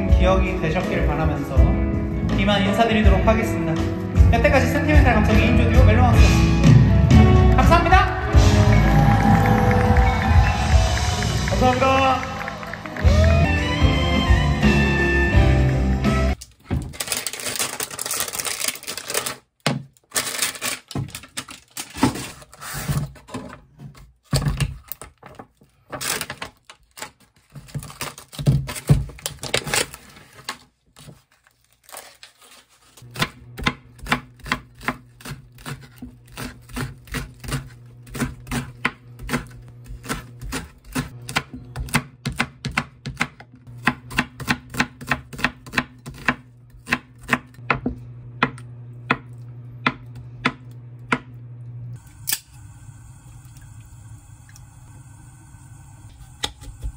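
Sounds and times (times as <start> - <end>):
plastic packaging rustling: 16.4 - 23.5, 24.1 - 33.1
knife chopping on wooden board: 33.1 - 51.3.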